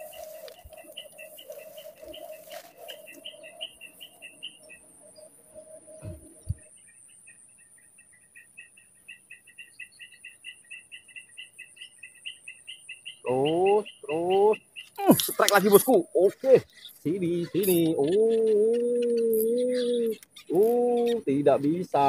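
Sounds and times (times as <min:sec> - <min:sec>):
insect chirps: 0:00.0 - 0:22.0
insects shrill pulsing trill: 0:00.0 - 0:22.0
soft low thumps: 0:06.0 - 0:06.7.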